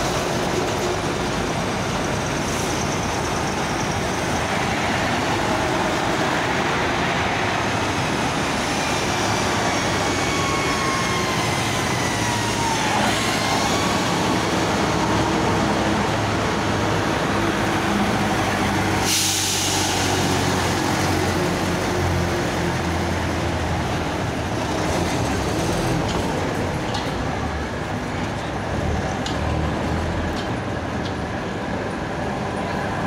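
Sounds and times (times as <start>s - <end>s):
trucks and buses driving past: 0.0s - 33.0s
hissing air burst: 19.0s - 20.3s.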